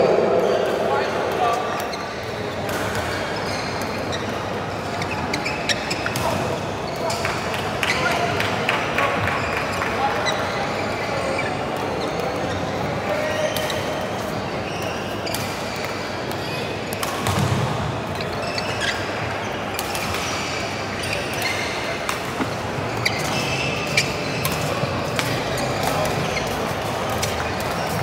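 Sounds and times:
murmur of voices: 0.0s - 28.0s
shoes squeaking on court floor: 1.3s - 28.0s.

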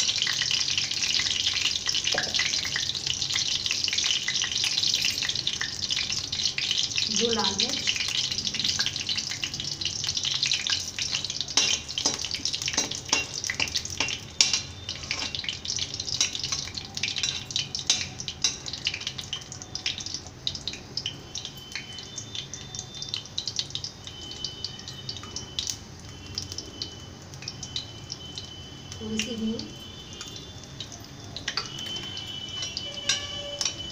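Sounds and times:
hot oil sizzling and crackling: 0.0s - 33.9s
ladle clinking and scraping pan: 11.1s - 15.6s, 31.5s - 33.9s.

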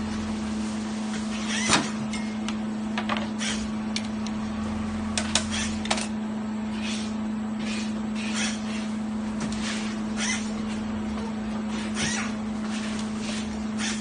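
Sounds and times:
edging machine humming: 0.0s - 14.0s
motor drone: 3.4s - 14.0s.

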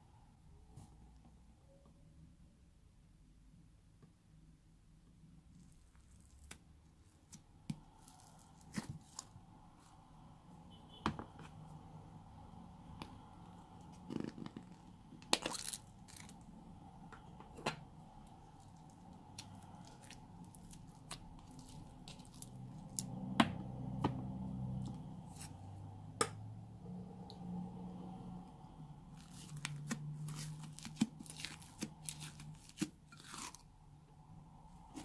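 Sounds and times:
slime clicking and crackling: 29.2s - 33.6s.

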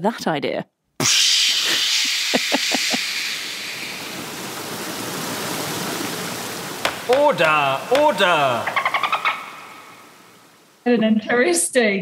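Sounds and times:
steady hissing rushing noise: 1.0s - 10.9s
short knocks: 6.8s - 8.2s.

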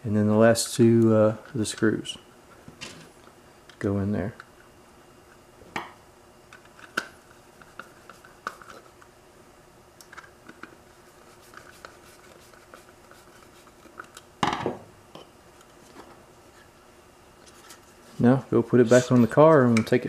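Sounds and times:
knock of unit being handled: 14.4s - 14.9s.

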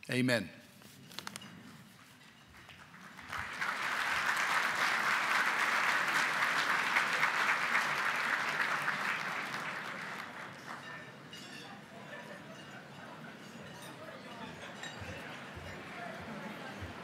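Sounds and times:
audience applauding: 2.6s - 11.4s.

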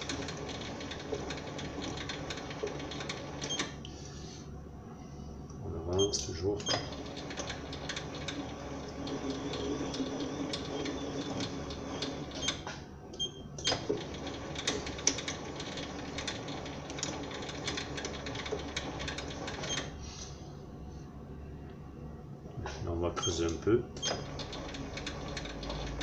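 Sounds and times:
lathe motor hum: 0.0s - 3.5s, 6.4s - 12.5s, 13.7s - 19.7s, 23.4s - 26.0s
lathe ticks and clicks: 0.0s - 3.7s, 6.6s - 12.6s, 13.6s - 19.9s, 23.3s - 26.0s.

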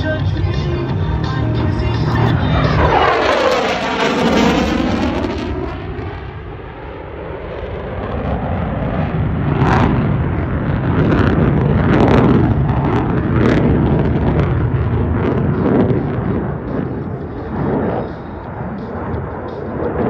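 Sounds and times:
jet engine roaring: 0.0s - 20.0s.

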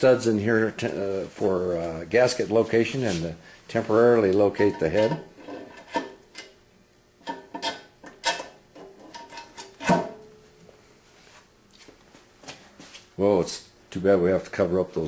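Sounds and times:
metal clicks and knocks: 7.2s - 10.1s.

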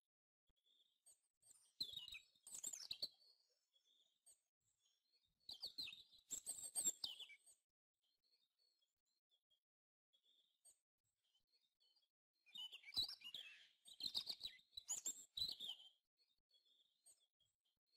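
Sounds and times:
faint bird chirps: 0.5s - 17.9s
songbird singing: 12.5s - 17.3s.

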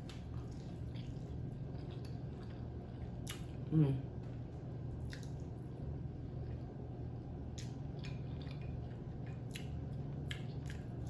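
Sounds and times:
soft wet smacks: 5.0s - 5.5s
person chewing and sucking fingers: 5.0s - 5.6s, 7.4s - 11.0s.

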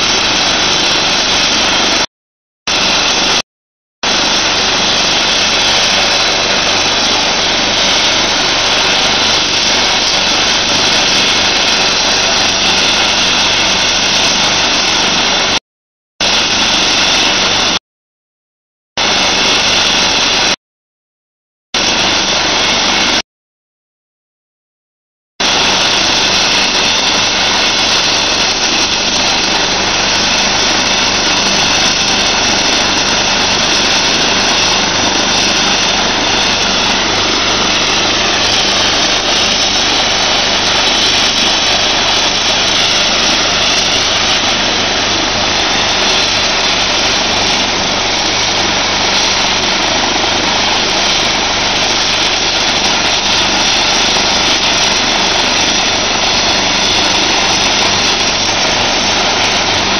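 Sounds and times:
helicopter turbine whine and rotor: 0.0s - 2.1s, 2.7s - 3.4s, 4.0s - 15.6s, 16.2s - 17.8s, 19.0s - 20.6s, 21.8s - 23.2s, 25.4s - 59.9s.

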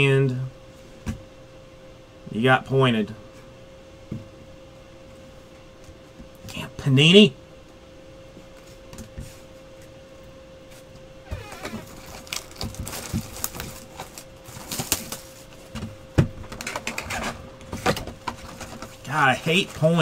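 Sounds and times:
faint steady hum: 0.0s - 20.0s
cardboard rustling and tearing: 11.3s - 15.6s.

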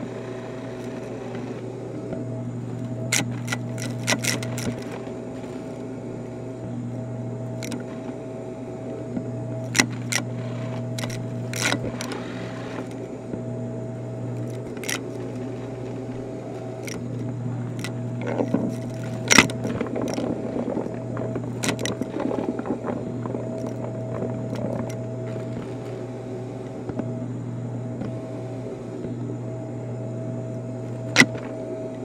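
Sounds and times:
vacuum cleaner running: 0.0s - 32.0s
debris clicking in vacuum nozzle: 2.7s - 5.9s, 6.9s - 8.2s, 8.9s - 13.1s, 14.2s - 25.7s, 30.9s - 31.6s.

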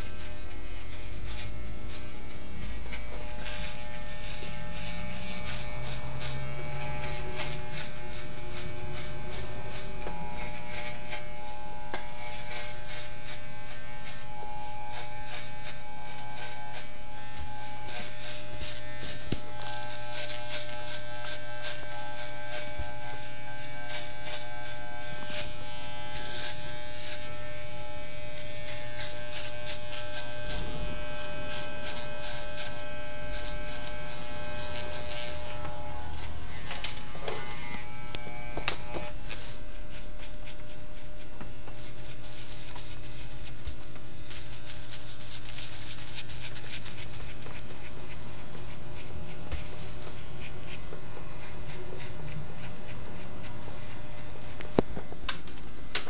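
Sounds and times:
hair clippers humming: 0.0s - 56.0s.

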